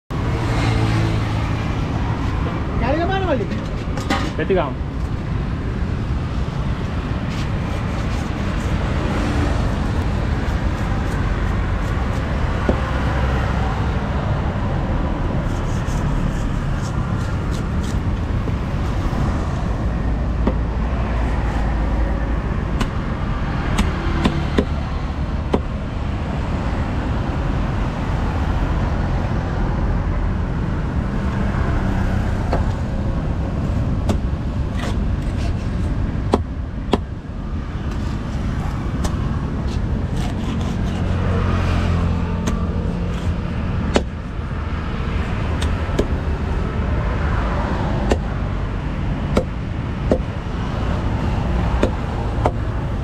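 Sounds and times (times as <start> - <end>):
outdoor market background: 0.1 - 53.0
road traffic rumble: 0.1 - 53.0
knife striking wooden log: 22.8 - 23.0, 23.7 - 24.8, 43.9 - 44.1, 48.0 - 48.3, 49.3 - 50.3.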